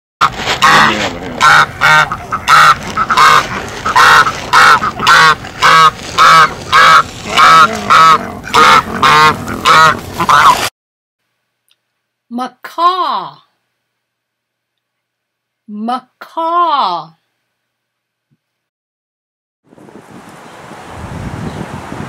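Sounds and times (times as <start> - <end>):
goose honking: 0.2 - 10.7.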